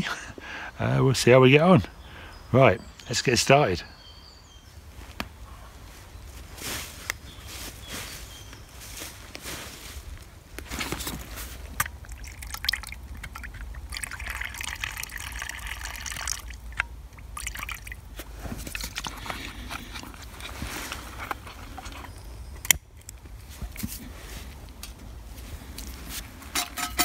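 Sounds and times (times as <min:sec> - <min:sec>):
fuel trickling into burner: 0:11.2 - 0:22.2.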